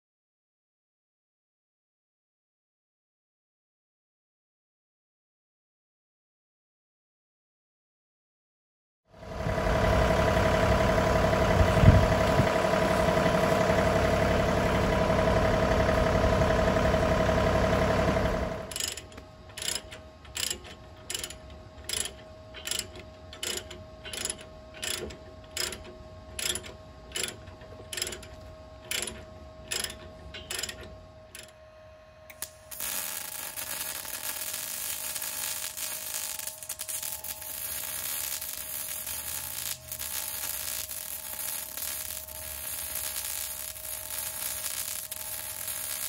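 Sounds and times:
tractor diesel engine running: 9.2s - 31.5s, 32.4s - 46.0s
chain hoist ratcheting clicks: 18.7s - 31.6s.

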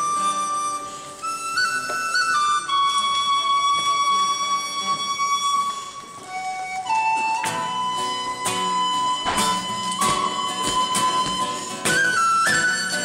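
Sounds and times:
tin whistle melody: 0.0s - 13.0s
strummed acoustic guitar chords: 7.5s - 13.0s.

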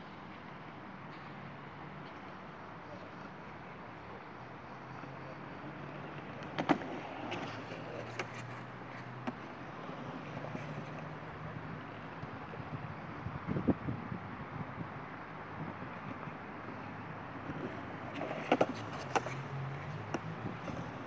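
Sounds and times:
skate wheels rolling on hard ground: 3.0s - 13.8s, 15.5s - 21.0s
sharp skateboard clack: 5.6s - 12.7s, 15.8s - 21.0s.

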